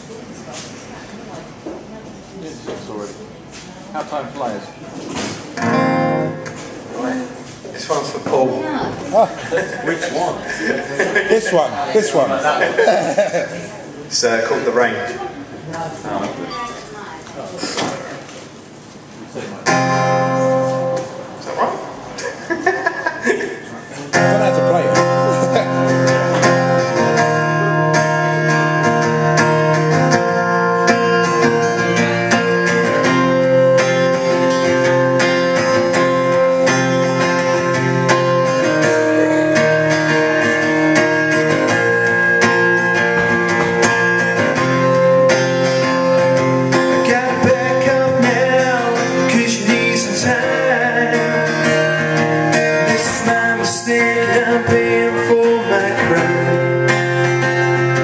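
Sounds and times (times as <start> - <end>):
acoustic guitar strumming: 5.1 - 13.8, 19.6 - 22.5, 24.0 - 58.0
man singing: 29.9 - 34.5, 46.7 - 57.0.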